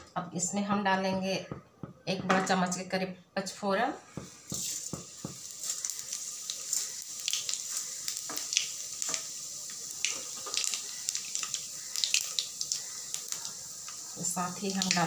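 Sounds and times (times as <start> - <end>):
seeds sizzling in hot oil: 4.1 - 15.0.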